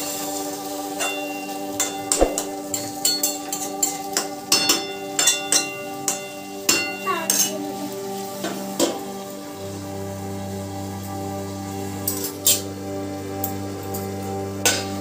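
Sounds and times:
background music: 0:00.0 - 0:15.0
frying sizzle: 0:00.0 - 0:15.0
steel plate clinking on pan: 0:01.0 - 0:07.5.

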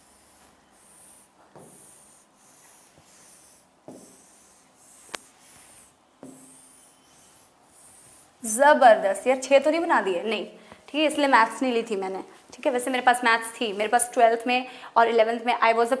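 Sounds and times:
pen strokes on whiteboard: 0:00.0 - 0:09.8.

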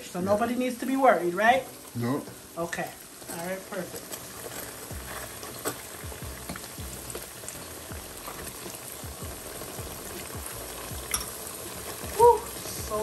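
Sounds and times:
food frying in hot oil: 0:00.0 - 0:13.0.

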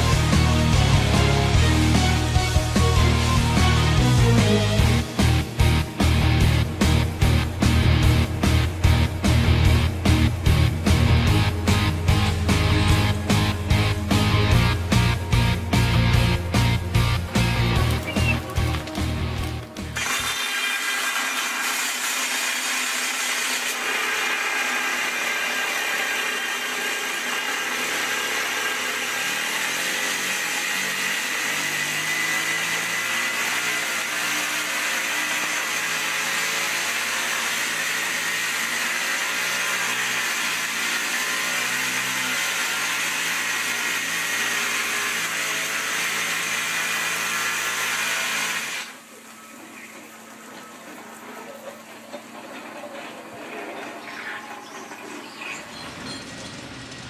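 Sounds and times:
hydraulic rock drill drilling: 0:17.3 - 0:49.1.

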